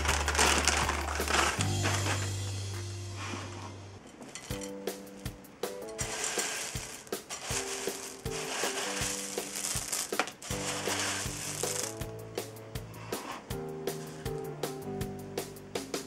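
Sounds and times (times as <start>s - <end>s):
dry cereal rustling in glass bowl: 0.0s - 2.3s, 4.2s - 5.0s, 5.9s - 12.0s
background music with steady beat: 0.0s - 4.0s, 4.6s - 16.0s.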